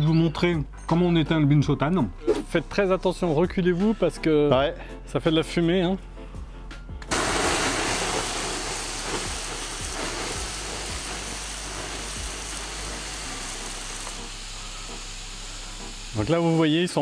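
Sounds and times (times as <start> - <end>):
charcoal crackling: 7.1 - 17.0
water hissing on hot charcoal: 7.1 - 17.0.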